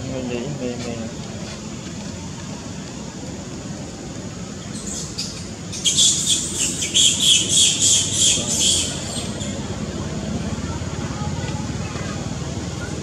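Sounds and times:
bird chirping rapidly: 4.7s - 9.6s.

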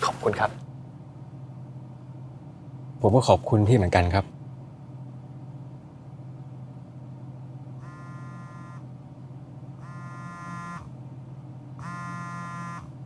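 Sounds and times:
phone vibrating buzz: 7.7s - 9.0s, 9.7s - 11.1s, 11.8s - 13.0s.

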